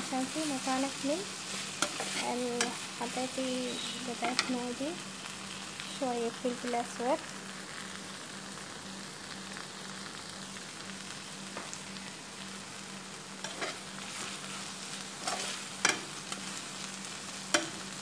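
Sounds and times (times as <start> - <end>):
sausage sizzling in a frying pan: 0.0 - 18.0
metal spoon scraping a pan: 1.5 - 2.8, 4.2 - 4.6, 13.4 - 16.6.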